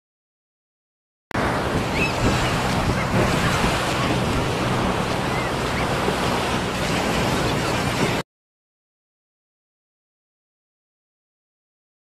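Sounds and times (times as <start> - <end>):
ocean surf washing onto beach: 1.4 - 8.2
wind buffeting microphone: 1.4 - 8.2.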